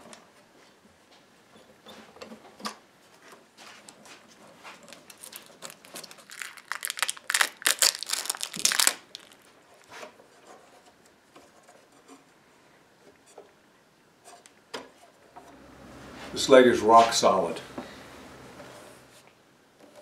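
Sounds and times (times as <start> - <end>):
plastic wrap crinkling and tearing: 4.8 - 9.9.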